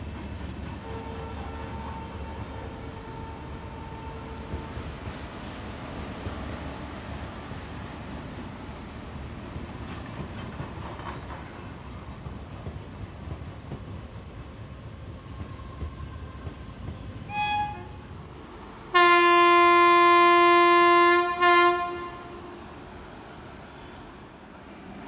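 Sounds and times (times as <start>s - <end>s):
train wheels rumbling on rails: 0.0s - 25.0s
locomotive horn blast: 0.8s - 4.7s, 17.3s - 18.0s, 18.9s - 22.7s.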